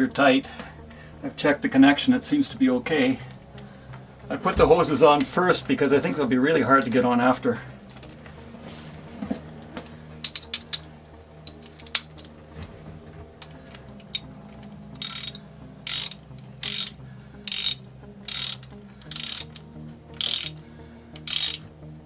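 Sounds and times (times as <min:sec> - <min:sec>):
ratchet wrench clicking: 0:14.0 - 0:14.3, 0:15.0 - 0:19.6, 0:20.2 - 0:20.6, 0:21.2 - 0:21.7.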